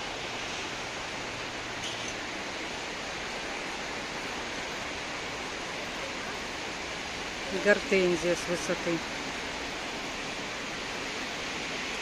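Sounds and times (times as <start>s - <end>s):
steady rain on trees and pavement: 0.0s - 12.0s.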